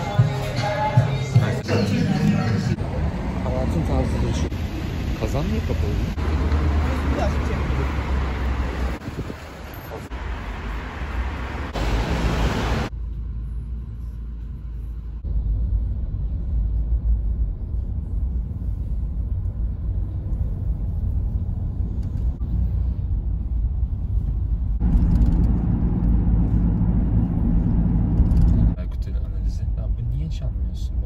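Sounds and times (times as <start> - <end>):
hissy outdoor street noise: 0.0 - 12.9
car cabin engine and tyre rumble: 0.0 - 31.0.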